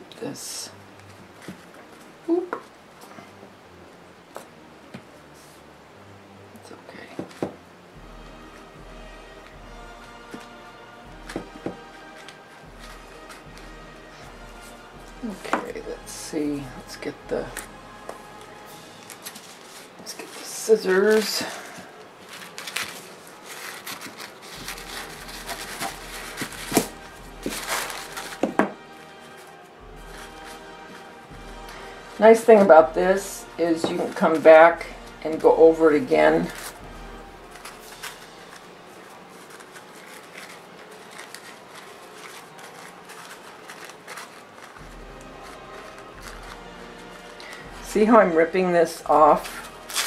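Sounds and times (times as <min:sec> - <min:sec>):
paper napkin rustling: 0:08.4 - 0:50.0
scissors cutting paper: 0:18.4 - 0:29.4, 0:37.5 - 0:47.7, 0:49.3 - 0:50.0.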